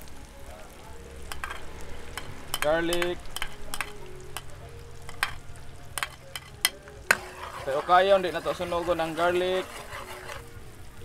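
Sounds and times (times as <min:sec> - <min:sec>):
garlic sizzling in butter: 0:00.0 - 0:11.0
spatula clicking on plate: 0:02.2 - 0:04.5, 0:06.0 - 0:07.5.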